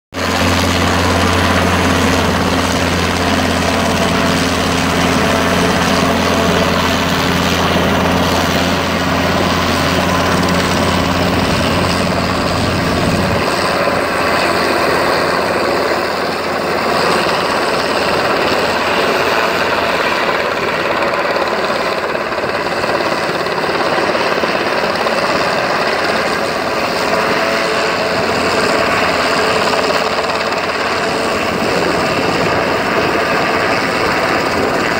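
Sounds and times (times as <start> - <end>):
helicopter engine and rotor: 0.1 - 34.9.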